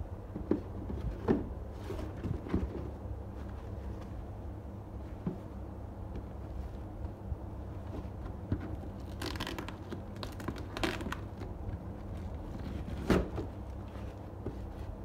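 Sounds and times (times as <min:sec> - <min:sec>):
steady low hum: 0:00.0 - 0:15.0
plastic pouch ripping and crinkling: 0:09.0 - 0:11.4.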